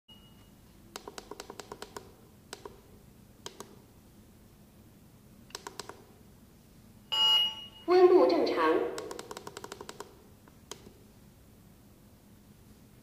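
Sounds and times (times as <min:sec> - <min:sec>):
push buttons clicking: 0:00.9 - 0:02.8, 0:03.4 - 0:03.8, 0:05.5 - 0:06.1, 0:08.9 - 0:11.0.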